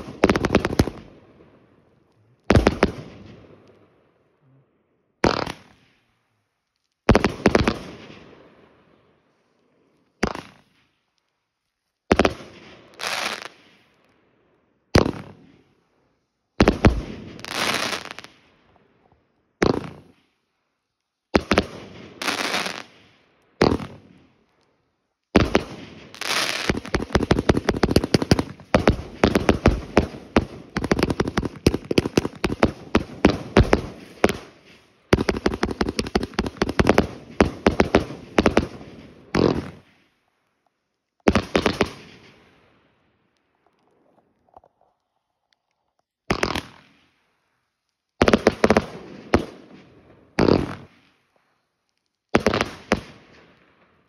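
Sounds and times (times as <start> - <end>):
fireworks bangs with crackle: 0.0 - 1.1, 2.5 - 3.6, 5.2 - 5.9, 7.0 - 8.3, 10.2 - 10.8, 12.1 - 13.8, 14.9 - 15.6, 16.6 - 18.5, 19.6 - 20.2, 21.4 - 24.3, 25.3 - 40.0, 41.2 - 42.6, 46.3 - 47.0, 48.2 - 51.2, 52.3 - 53.5
rapid-fire firework pops: 0.0 - 1.1, 2.5 - 3.4, 5.2 - 5.9, 6.8 - 8.2, 10.1 - 11.3, 12.1 - 14.0, 14.9 - 15.7, 16.6 - 18.4, 19.0 - 20.3, 21.3 - 24.6, 25.3 - 42.5, 46.3 - 47.2, 48.2 - 51.2, 51.9 - 53.5.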